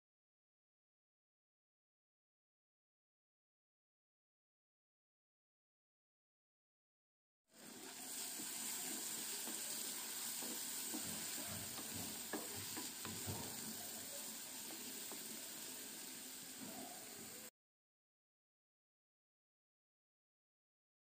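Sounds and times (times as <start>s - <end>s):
onion sizzling in oil: 7.5s - 17.5s
spatula scraping and knocking pan: 8.3s - 15.6s.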